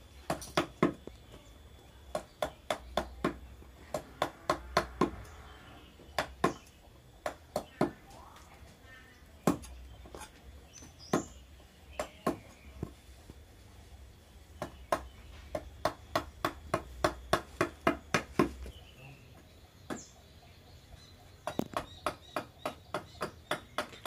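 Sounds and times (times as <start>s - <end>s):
mallet striking chisel into wood: 14.6s - 18.5s, 21.4s - 24.0s.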